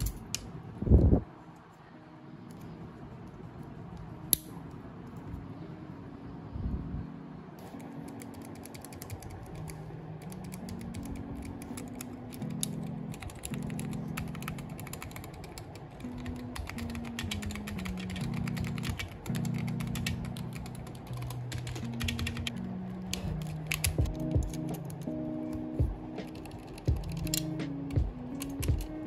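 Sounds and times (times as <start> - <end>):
soft background music: 0.0 - 29.0
mechanical keyboard key clicks: 28.4 - 29.0.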